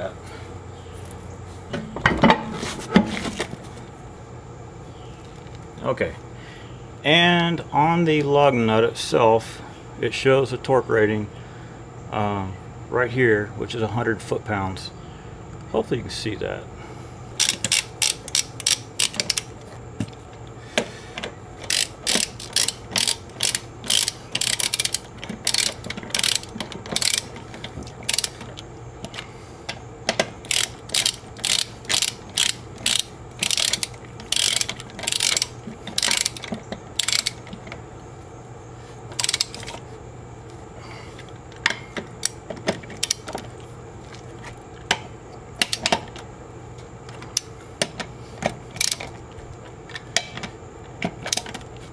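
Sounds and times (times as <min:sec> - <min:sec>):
ratchet wrench clicking: 0:17.4 - 0:19.5, 0:21.6 - 0:27.4, 0:28.1 - 0:28.4, 0:30.1 - 0:37.5, 0:39.2 - 0:39.7, 0:48.8 - 0:49.0.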